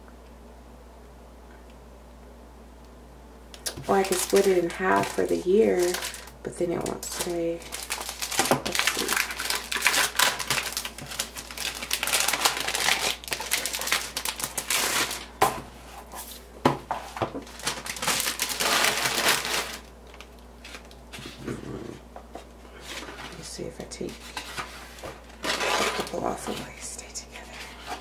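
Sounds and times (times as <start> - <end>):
cellophane sleeve crinkling: 3.6 - 16.3, 17.1 - 21.4, 24.1 - 26.6
paper rustling: 24.1 - 26.7.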